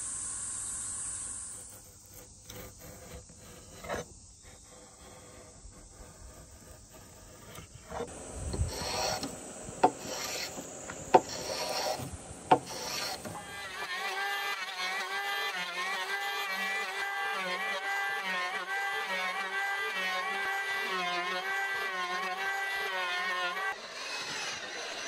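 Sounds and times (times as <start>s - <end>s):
steady high hiss: 0.0s - 19.2s
blade scraping bark off wood: 1.5s - 25.0s.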